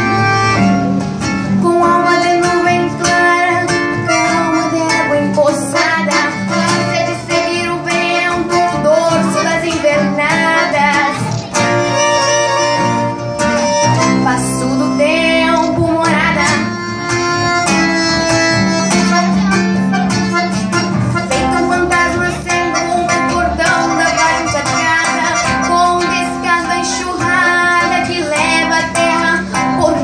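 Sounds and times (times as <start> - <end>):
accordion chords: 0.0 - 30.0
acoustic guitar plucked and strummed: 0.0 - 30.0
girl singing: 1.6 - 12.2, 14.0 - 17.0, 18.9 - 20.6, 21.3 - 30.0.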